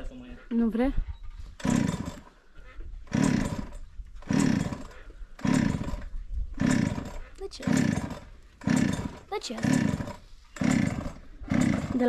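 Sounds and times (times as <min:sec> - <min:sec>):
power driver driving screws: 0:01.6 - 0:02.3, 0:03.1 - 0:12.0.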